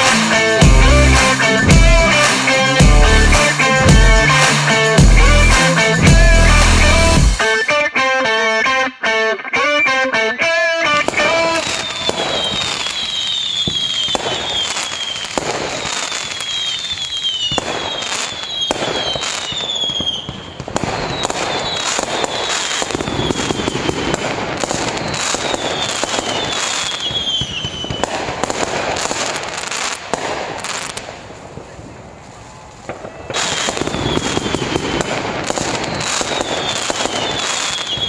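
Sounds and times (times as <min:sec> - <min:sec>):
fireworks bangs and crackling: 0:00.0 - 0:07.7, 0:10.9 - 0:38.0
falling firework whistles: 0:11.1 - 0:38.0.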